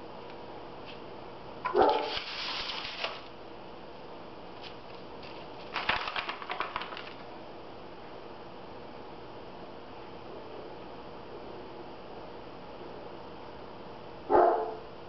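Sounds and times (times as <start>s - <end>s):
paper rustling and scraping: 1.8s - 3.3s.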